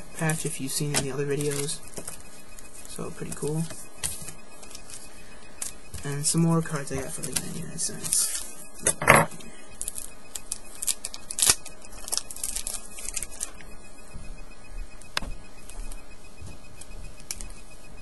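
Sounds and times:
trading cards rustling and clicking: 0.3s - 9.0s, 9.8s - 13.7s.

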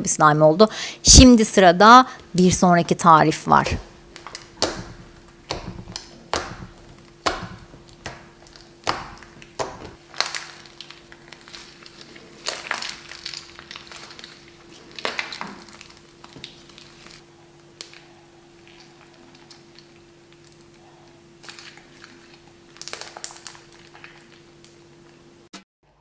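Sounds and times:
hands squelching slime: 3.7s - 24.4s.

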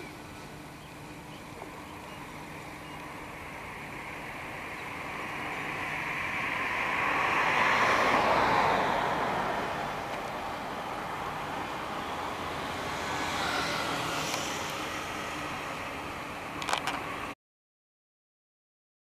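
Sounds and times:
road vehicle passing by: 0.0s - 17.4s.

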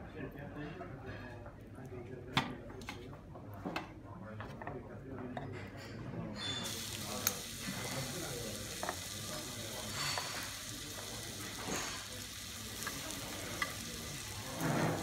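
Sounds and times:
metal cutlery clinking on plates: 5.4s - 7.4s, 9.7s - 15.0s
steady sizzling hiss: 6.6s - 15.0s.

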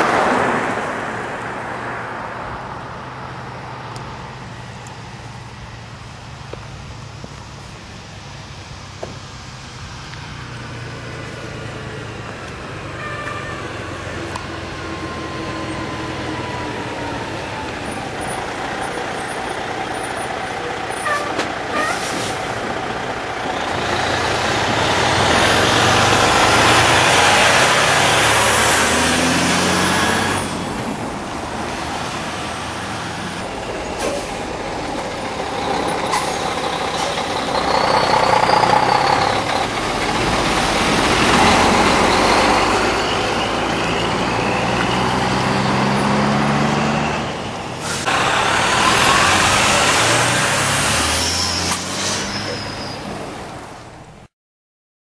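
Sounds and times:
diesel trucks driving past: 0.0s - 54.3s
air brakes hissing: 21.0s - 22.6s, 33.6s - 38.8s, 47.8s - 49.9s, 51.3s - 53.2s.

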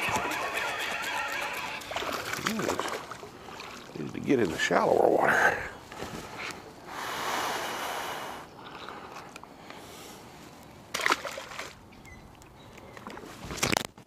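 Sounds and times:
water splashing: 0.0s - 5.7s, 10.9s - 11.9s
sharp splash: 1.9s - 4.0s, 10.9s - 11.8s.

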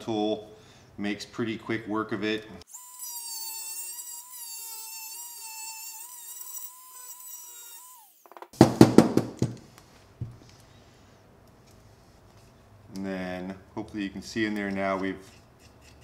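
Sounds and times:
rotary tool whining: 2.7s - 8.5s
loud knocks: 8.4s - 9.6s.

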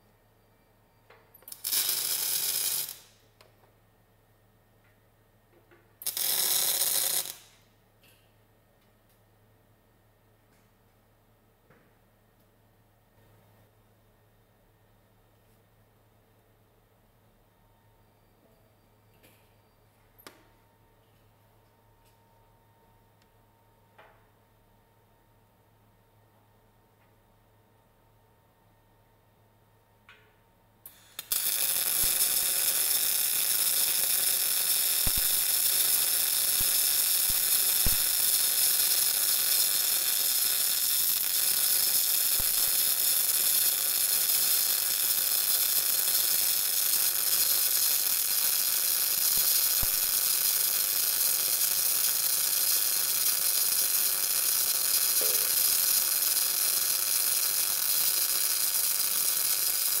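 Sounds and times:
welding arc hissing: 1.4s - 3.2s, 6.0s - 7.6s, 30.9s - 60.0s.

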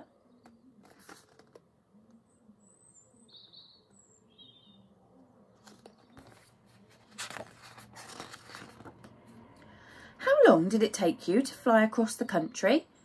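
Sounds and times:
book rustling and handling: 0.4s - 1.7s, 5.5s - 9.6s
high bird chirps: 2.6s - 4.9s.

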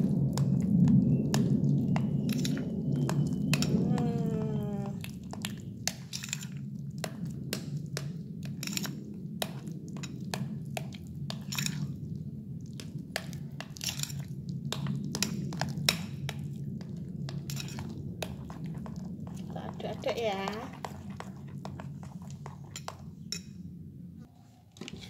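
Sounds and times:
spoon clinking and scraping glass: 6.0s - 6.6s, 11.3s - 12.0s, 17.5s - 18.0s, 22.2s - 23.6s.

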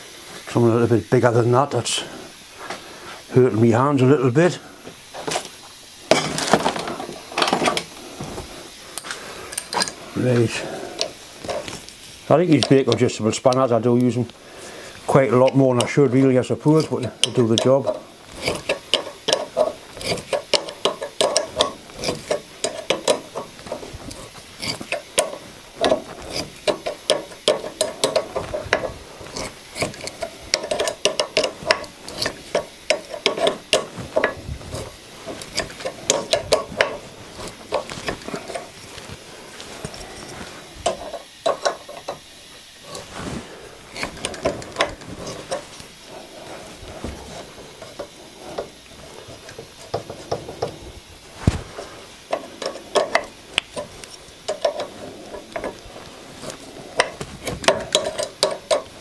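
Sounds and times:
spanner clicking on metal: 8.9s - 14.4s, 15.0s - 38.8s, 40.8s - 43.0s, 43.9s - 45.9s, 47.7s - 50.8s, 52.2s - 59.0s
tap scraping cutting thread: 16.8s - 38.7s.

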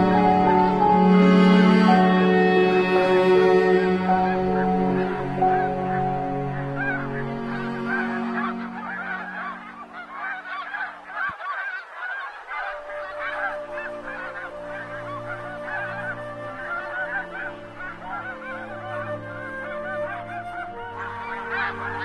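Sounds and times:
steady low drone: 0.0s - 10.2s
geese honking: 0.0s - 22.0s.

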